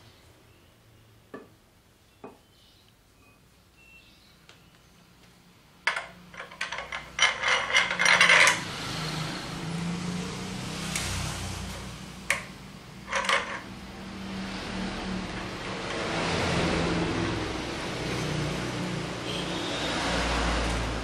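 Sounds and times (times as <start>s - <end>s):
metal frame clanking and rattling: 5.9s - 8.7s, 13.0s - 13.7s.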